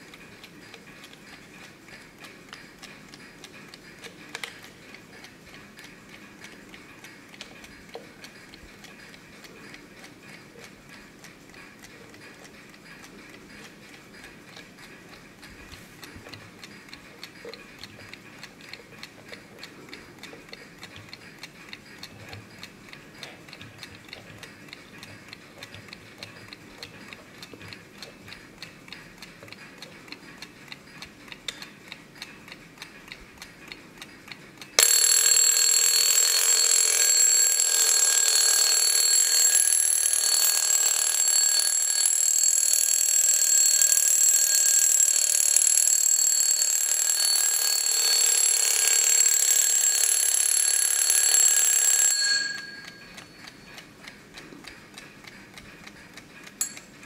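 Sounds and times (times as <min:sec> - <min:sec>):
clock ticking: 0:00.0 - 0:57.0
alarm bell ringing: 0:34.8 - 0:53.7.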